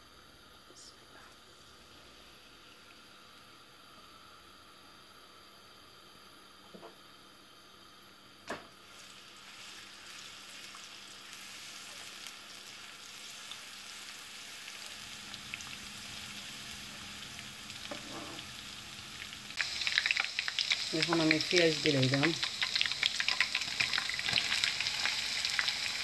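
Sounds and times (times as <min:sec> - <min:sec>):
garlic sizzling in hot oil: 0:08.7 - 0:26.0.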